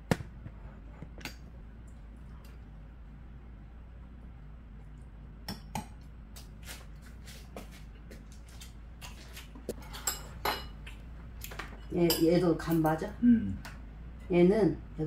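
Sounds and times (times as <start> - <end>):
utensils clinking on ceramic bowls: 9.8 - 10.8, 11.7 - 12.9.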